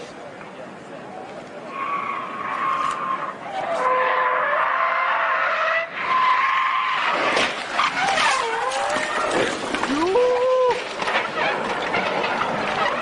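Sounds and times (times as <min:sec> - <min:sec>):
car tyres squealing in a skid: 0:01.7 - 0:13.0
sharp knocks and clatter: 0:10.8 - 0:13.0.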